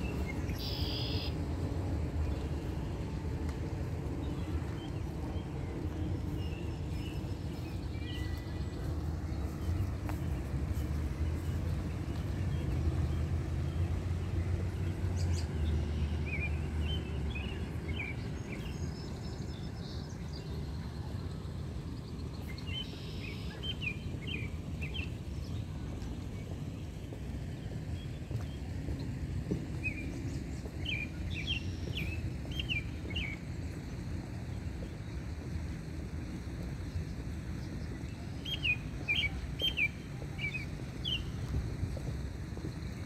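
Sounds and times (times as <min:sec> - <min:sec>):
steady low rumble: 0:00.0 - 0:43.0
bird chirps: 0:00.4 - 0:01.4, 0:22.4 - 0:24.0.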